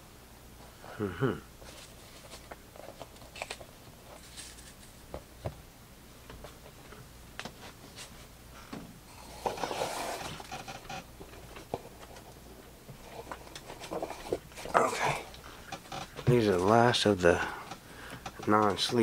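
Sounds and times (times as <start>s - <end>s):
cards shuffling and rustling: 1.6s - 5.2s.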